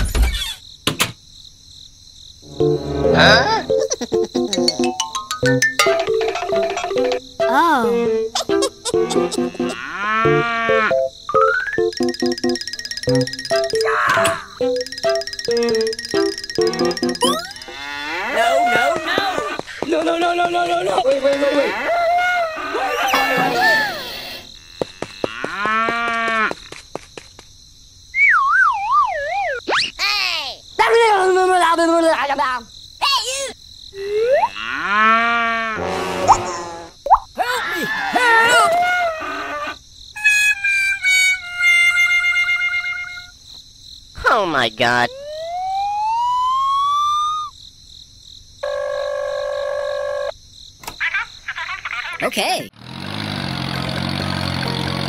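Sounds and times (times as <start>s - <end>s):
drawn-out steady call: 11.8s - 19.8s
wavering whistle-like tone: 45.2s - 47.5s.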